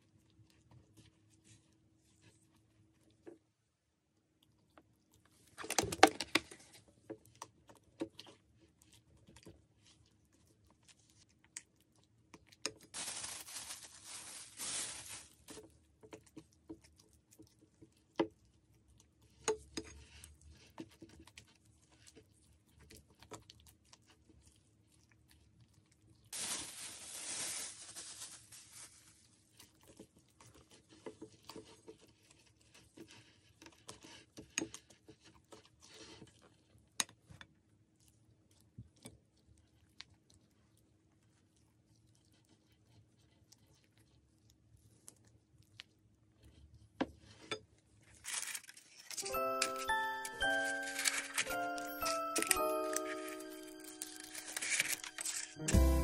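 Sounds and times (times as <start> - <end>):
plastic rustling: 12.8 - 15.7, 26.3 - 29.4, 48.1 - 56.0
spatula mixing batter in glass bowl: 15.4 - 25.6, 29.1 - 43.2.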